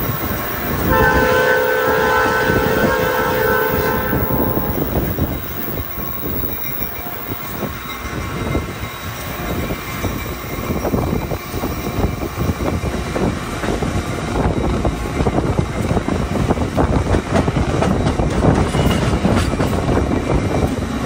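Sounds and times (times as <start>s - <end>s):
train rumbling on rails: 0.0s - 21.0s
train horn chord: 0.8s - 5.2s.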